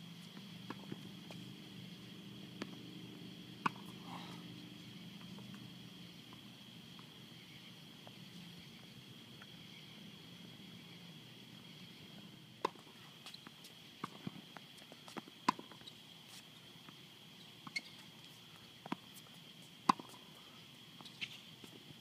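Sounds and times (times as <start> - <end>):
tennis ball bouncing: 2.5 - 4.0, 12.6 - 12.9, 15.1 - 15.9, 19.8 - 20.2
racket striking tennis ball: 3.6 - 4.0.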